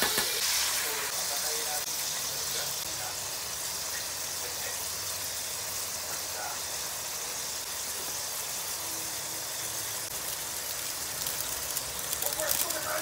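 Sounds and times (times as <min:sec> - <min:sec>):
food sizzling in a wok: 0:00.0 - 0:13.0
crackling: 0:09.7 - 0:13.0.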